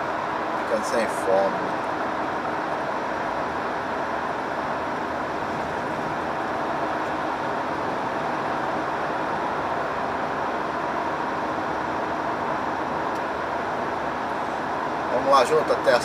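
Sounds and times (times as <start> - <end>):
heavy truck engine and road noise: 0.0 - 16.0.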